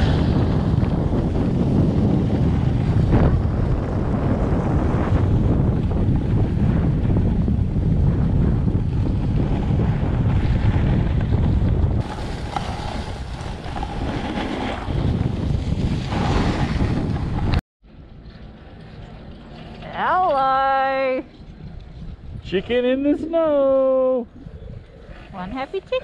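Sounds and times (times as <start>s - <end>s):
wind buffeting microphone: 0.0s - 26.0s
skis hissing over snow: 12.0s - 15.1s.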